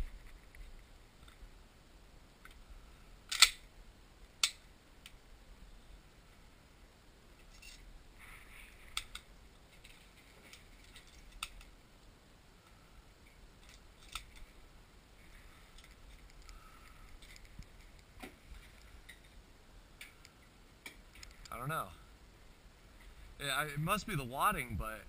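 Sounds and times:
shotgun metallic clicks: 3.3s - 3.7s, 4.4s - 4.6s
faint ticks: 15.7s - 19.4s.

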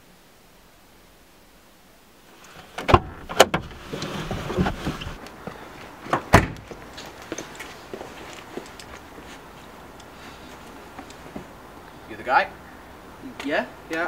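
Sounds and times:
rustling and shuffling: 2.2s - 12.1s
car door shutting: 2.6s - 5.2s, 6.1s - 6.7s.

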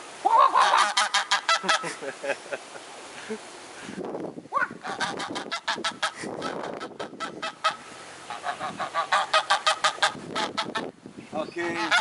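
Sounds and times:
goose honking: 0.3s - 1.9s, 4.6s - 10.9s, 11.8s - 12.0s.

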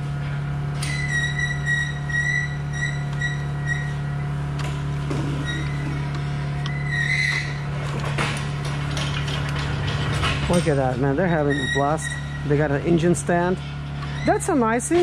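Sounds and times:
low machine hum: 0.0s - 15.0s
faint high squeak: 0.8s - 4.0s, 6.7s - 7.6s, 11.4s - 12.5s.

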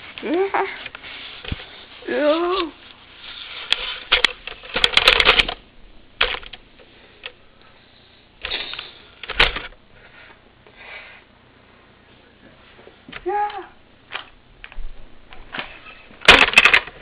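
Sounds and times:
rustling: 0.0s - 5.6s
sharp clicks and rattling: 3.7s - 5.6s, 6.2s - 6.6s, 9.2s - 9.8s, 16.2s - 17.0s.

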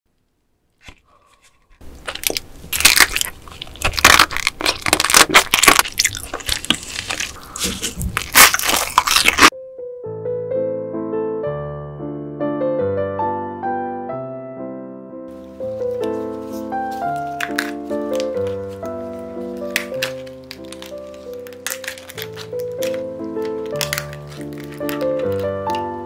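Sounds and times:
crunching and wet chewing: 1.8s - 9.5s, 16.6s - 25.9s
soft piano music: 9.5s - 26.0s.

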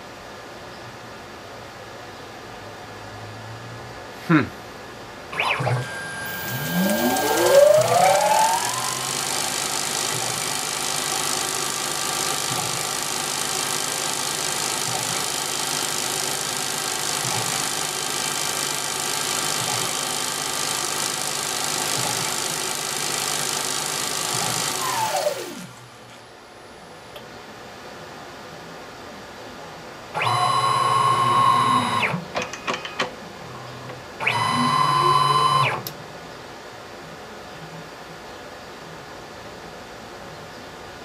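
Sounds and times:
lathe motor whining: 5.4s - 25.8s.

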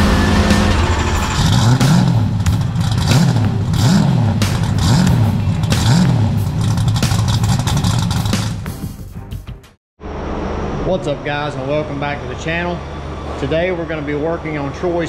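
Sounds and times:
car engine revving: 0.0s - 8.7s.

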